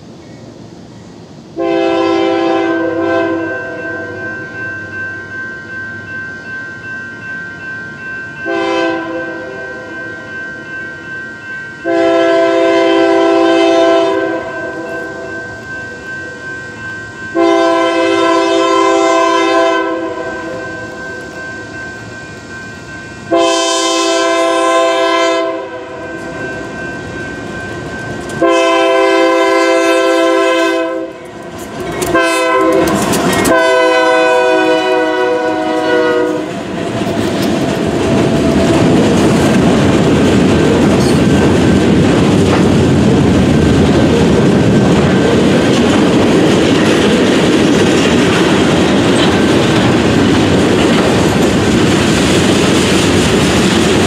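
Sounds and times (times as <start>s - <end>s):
train cars rumbling and clattering: 0.0s - 54.0s
locomotive air horn: 1.6s - 4.2s, 8.5s - 9.9s, 11.8s - 15.3s, 17.4s - 20.6s, 23.3s - 26.2s, 28.4s - 31.2s, 32.1s - 36.5s.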